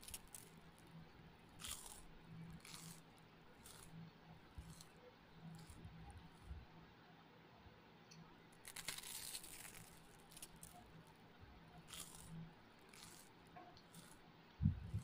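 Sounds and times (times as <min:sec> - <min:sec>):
fingers working food on plate: 0:01.6 - 0:06.6, 0:11.8 - 0:15.0.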